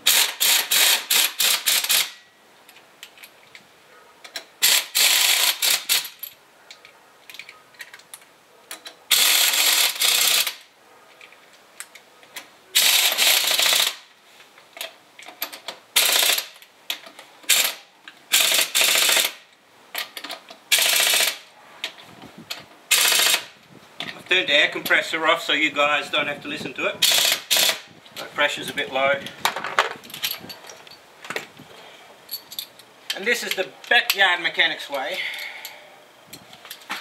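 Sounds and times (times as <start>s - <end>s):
pneumatic impact wrench bursts: 0.0s - 2.2s, 4.6s - 6.2s, 9.1s - 10.7s, 12.8s - 14.0s, 16.0s - 16.6s, 17.5s - 19.4s, 20.7s - 21.4s, 22.9s - 23.5s, 27.0s - 27.9s.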